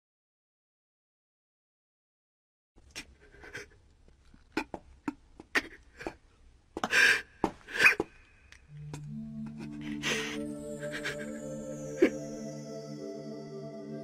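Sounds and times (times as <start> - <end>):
soft sustained music: 8.7 - 14.0
character sobbing: 8.9 - 13.1.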